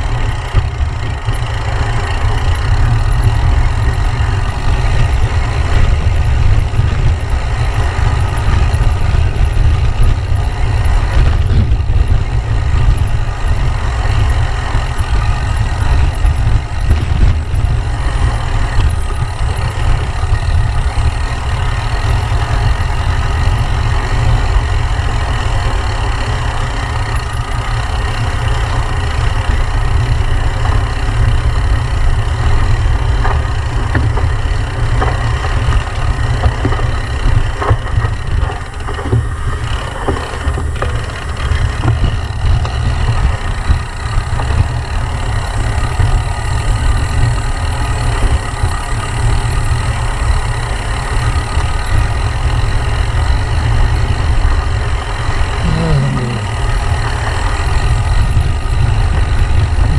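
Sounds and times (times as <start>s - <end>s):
wind buffeting microphone: 0.0s - 59.9s.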